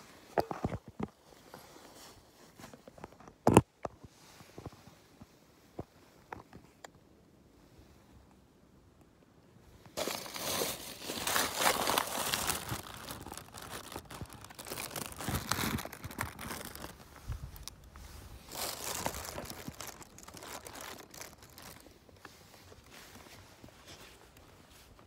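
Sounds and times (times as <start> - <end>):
fabric rustling against phone: 10.0 - 25.0.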